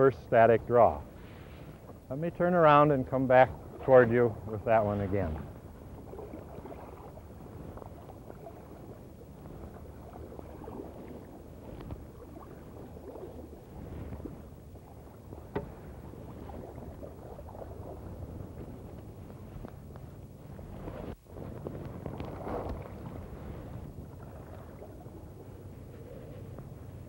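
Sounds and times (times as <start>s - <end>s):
canoe paddle strokes in water: 0.9s - 27.0s.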